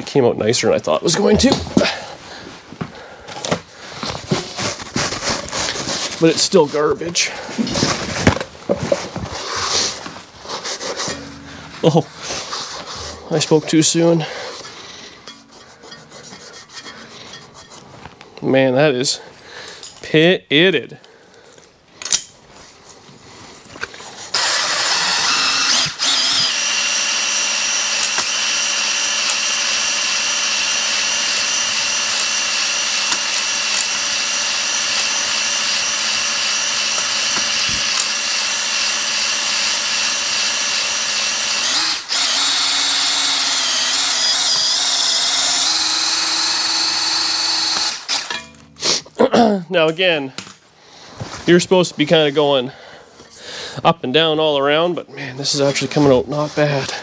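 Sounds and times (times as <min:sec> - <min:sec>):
handling noise: 0:01.2 - 0:18.3
cordless drill whining: 0:24.2 - 0:48.7.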